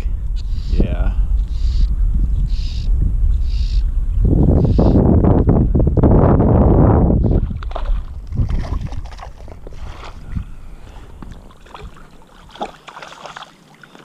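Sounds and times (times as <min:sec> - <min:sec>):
wind gusting on microphone: 0:00.0 - 0:13.5
water sloshing and splashing: 0:07.2 - 0:14.0.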